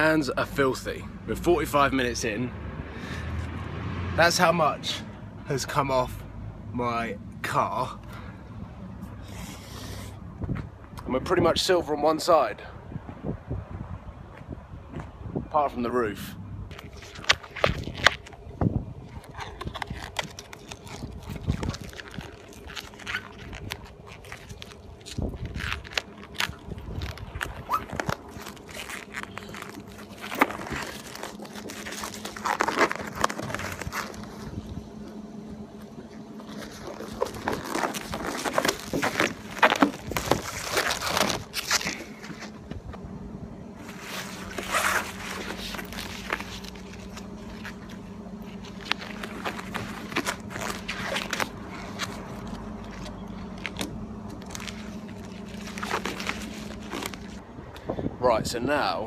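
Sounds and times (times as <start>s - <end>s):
steady low hum: 4.7s - 11.7s, 12.6s - 59.0s
plastic film crackling and crinkling: 16.7s - 18.4s, 19.1s - 34.7s, 36.4s - 42.6s, 43.8s - 57.4s
film tearing rasps: 19.1s - 34.5s, 36.5s - 42.5s, 43.8s - 57.4s.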